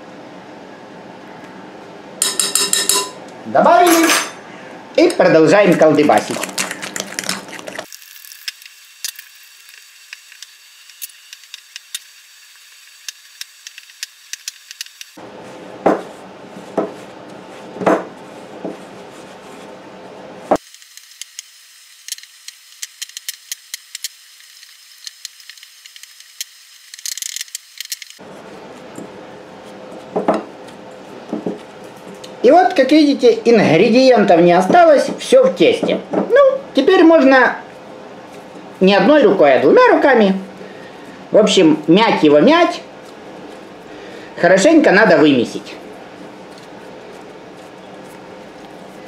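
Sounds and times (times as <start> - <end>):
dough kneaded in glass bowl: 15.2 - 20.6, 41.3 - 49.0.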